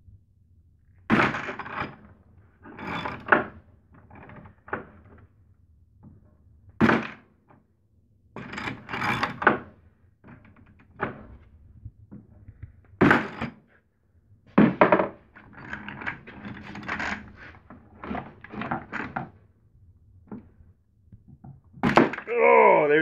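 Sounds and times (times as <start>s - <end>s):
tools clinking and rattling: 14.8s - 17.4s.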